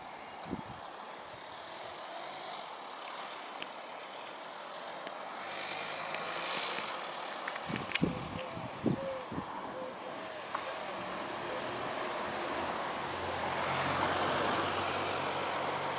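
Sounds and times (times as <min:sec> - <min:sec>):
vehicle rushing noise: 0:10.1 - 0:15.9.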